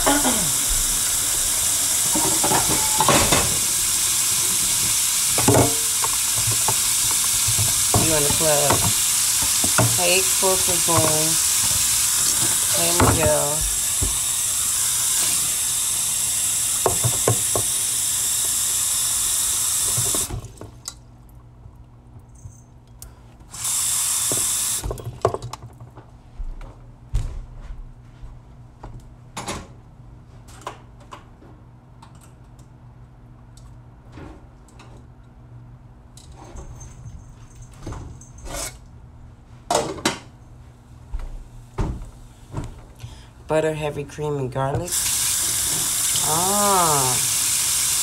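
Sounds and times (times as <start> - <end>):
kitchen things clattering: 1.9 - 13.8
tap running into a pot: 4.7 - 14.2, 16.8 - 17.8.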